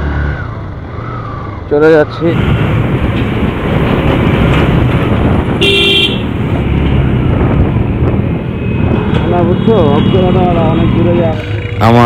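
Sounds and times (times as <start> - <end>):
road noise: 0.0 - 12.0
wind rush: 2.3 - 11.4
motorcycle engine: 2.3 - 12.0
horn toot: 5.6 - 6.3.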